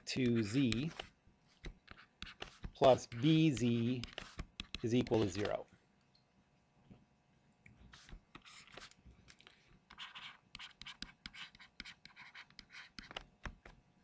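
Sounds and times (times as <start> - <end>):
stylus tapping on pen tablet: 3.5 - 5.6, 10.5 - 13.7.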